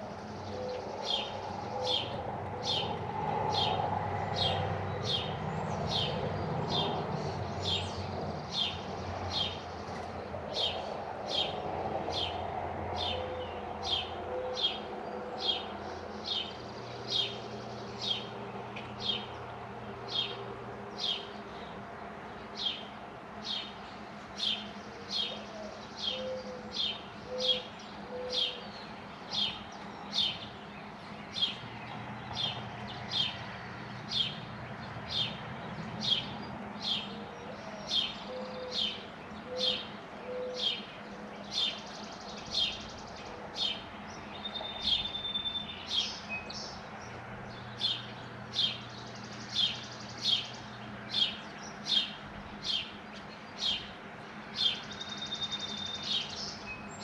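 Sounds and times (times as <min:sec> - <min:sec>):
songbird chirping: 0:00.0 - 0:57.0
mourning dove cooing: 0:00.4 - 0:03.0, 0:13.0 - 0:15.6, 0:25.2 - 0:28.7, 0:37.1 - 0:41.5.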